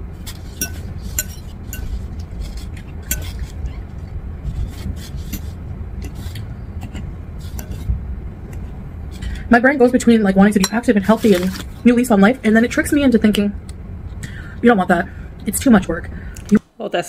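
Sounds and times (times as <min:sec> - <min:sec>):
low hum: 0:00.0 - 0:16.6
fork scraping salad bowl: 0:00.2 - 0:07.9, 0:11.0 - 0:11.8.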